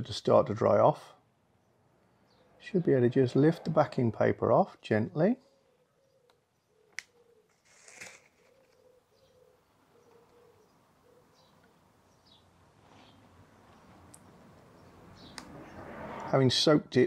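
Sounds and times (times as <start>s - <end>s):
paper peeling rustle: 7.5s - 8.9s.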